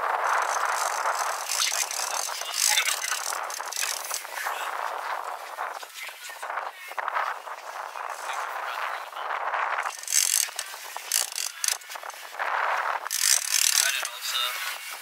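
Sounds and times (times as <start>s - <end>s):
wind hiss: 0.0s - 15.0s
fishing reel ratcheting: 0.2s - 4.3s, 9.8s - 11.8s, 13.0s - 14.1s.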